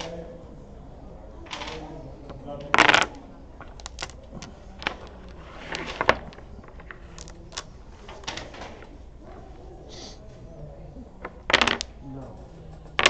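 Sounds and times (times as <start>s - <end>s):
dominoes clicking on wooden table: 1.5s - 2.0s, 2.6s - 8.9s, 11.2s - 13.0s.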